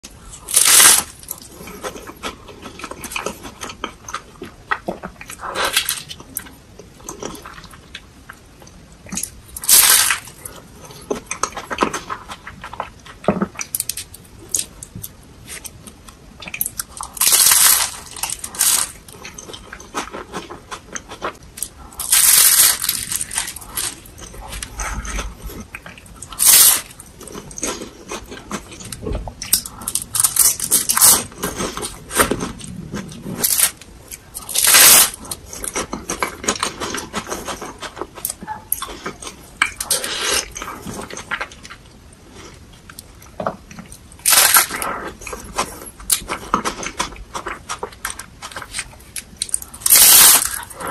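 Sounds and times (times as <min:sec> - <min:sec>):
crackly chewing: 0:00.0 - 0:50.9
loud crunching bites: 0:16.8 - 0:20.5, 0:21.2 - 0:25.3, 0:44.2 - 0:44.9, 0:49.4 - 0:50.7.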